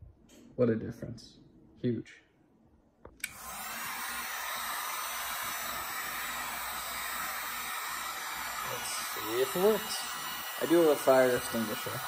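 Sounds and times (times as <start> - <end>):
heat gun blowing: 3.2 - 12.0.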